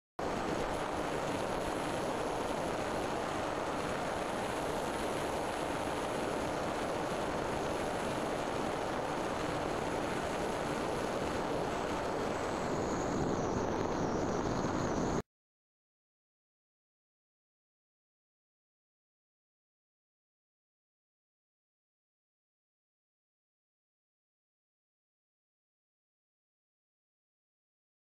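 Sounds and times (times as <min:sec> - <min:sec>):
faint high whine: 0:00.2 - 0:15.2
model aircraft motor and propeller: 0:00.2 - 0:15.2
wind rushing over airframe: 0:00.2 - 0:15.2.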